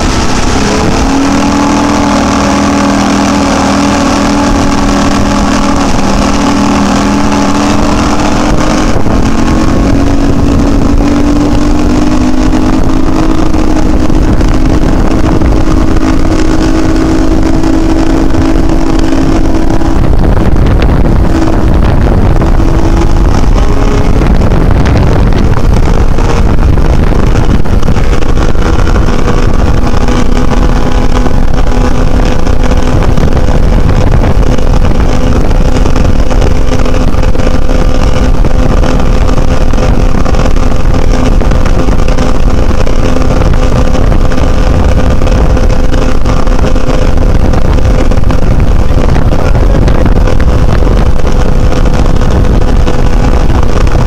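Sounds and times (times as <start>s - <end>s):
outboard engine at high speed: 0.0s - 54.0s
rush of wind and spray: 0.0s - 54.0s.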